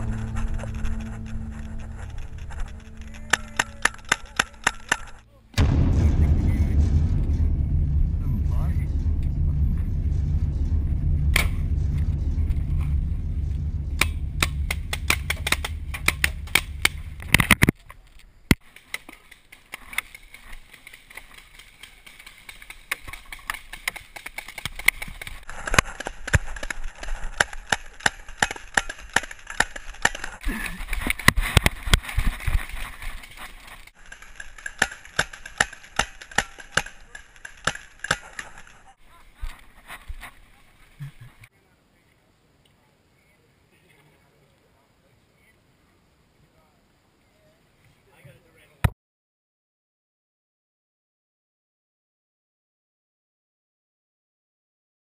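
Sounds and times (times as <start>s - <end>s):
low rumble: 0.0s - 17.6s.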